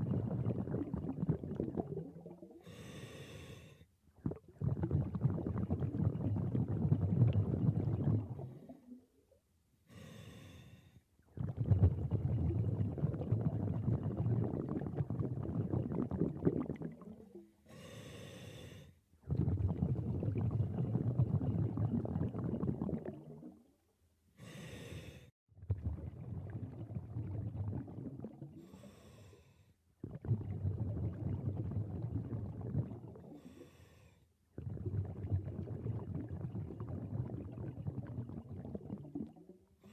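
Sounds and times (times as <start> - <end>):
exhaled bubbles underwater: 0.0 - 2.9, 4.1 - 9.3, 11.2 - 17.6, 19.2 - 23.8, 25.6 - 28.9, 30.0 - 33.7, 34.5 - 39.9.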